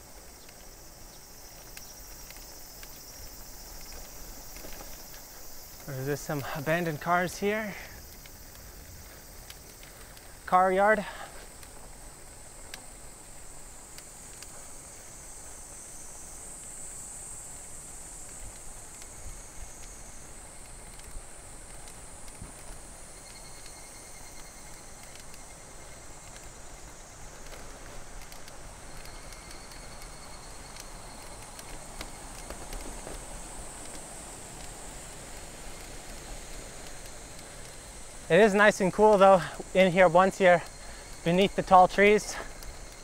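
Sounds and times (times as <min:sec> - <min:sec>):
insects chorus: 0:00.0 - 0:43.0
faint clicks: 0:00.2 - 0:14.7, 0:20.6 - 0:39.8.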